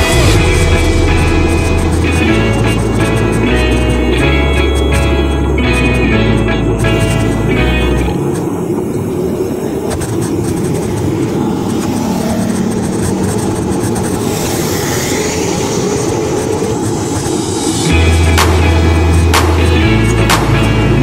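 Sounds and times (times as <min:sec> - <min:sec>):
road and vehicle noise: 0:00.0 - 0:21.0
wind buffeting microphone: 0:00.0 - 0:21.0
hiss: 0:08.2 - 0:18.4.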